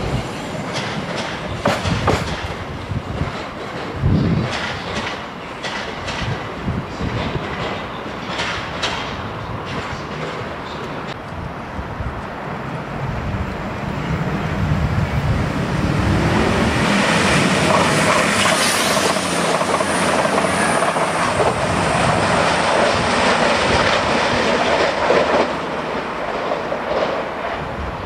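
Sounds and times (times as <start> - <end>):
train wheel and rail noise: 0.0 - 28.0.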